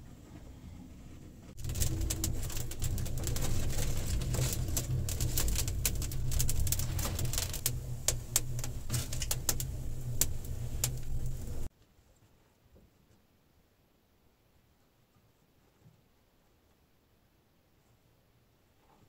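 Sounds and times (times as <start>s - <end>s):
low fire rumble: 0.2s - 11.7s
wood fire crackling and popping: 1.5s - 11.7s.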